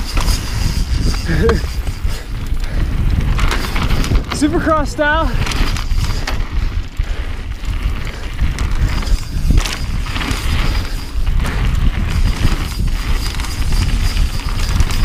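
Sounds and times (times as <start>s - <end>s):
bike knocking and rattling: 0.0s - 15.0s
wind buffeting microphone: 0.0s - 15.0s.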